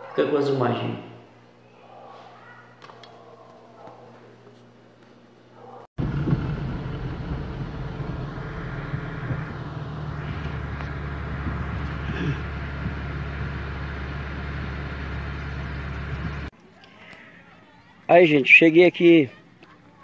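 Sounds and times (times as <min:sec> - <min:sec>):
car engine rumble inside cabin: 0:06.0 - 0:16.5.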